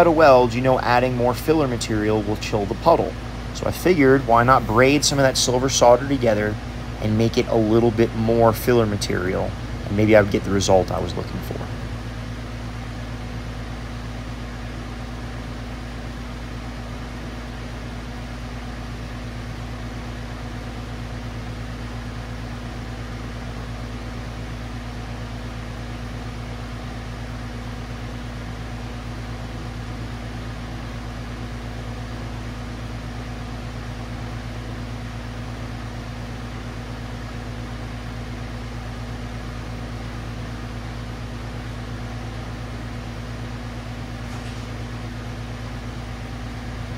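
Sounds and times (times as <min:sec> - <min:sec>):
constant low hum: 0:00.0 - 0:46.9
torch flame hissing: 0:44.2 - 0:45.0.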